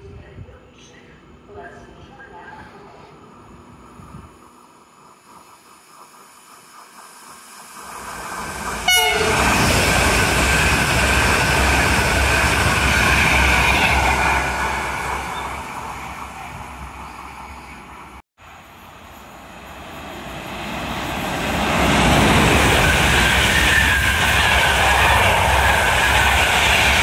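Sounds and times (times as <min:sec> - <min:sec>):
train rumbling: 0:00.0 - 0:27.0
train horn blast: 0:08.8 - 0:09.7.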